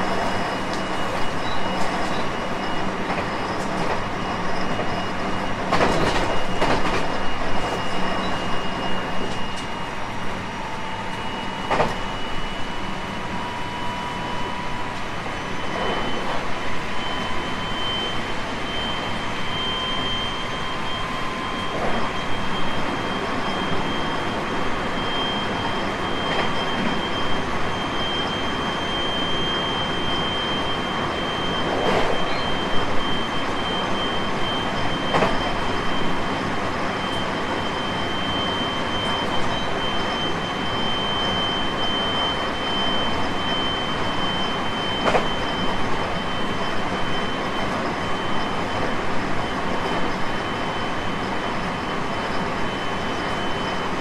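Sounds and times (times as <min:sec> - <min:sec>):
steady high-pitched tone: 0:00.0 - 0:54.0
train wheels rumbling on rail: 0:00.0 - 0:54.0.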